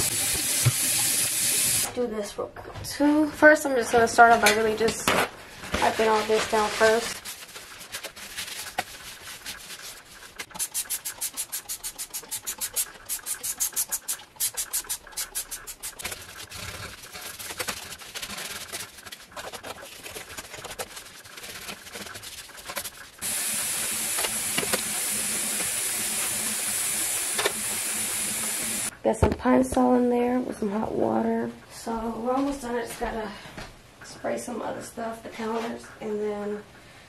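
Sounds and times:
tap water running: 0:00.0 - 0:01.9, 0:23.2 - 0:28.9
sponge scrubbing stovetop: 0:05.8 - 0:28.9.

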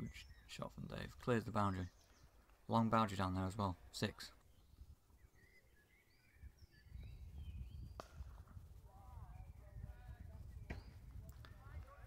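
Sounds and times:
birds chirping: 0:00.0 - 0:12.0
low wind rumble: 0:04.5 - 0:12.0.

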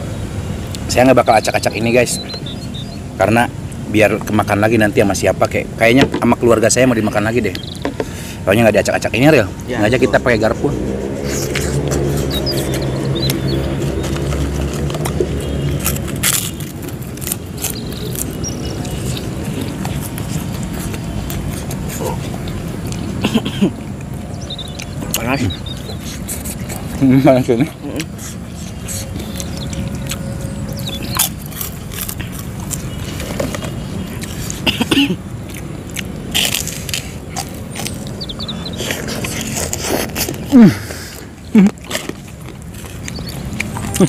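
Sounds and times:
wet chewing with smacks: 0:10.8 - 0:44.0.

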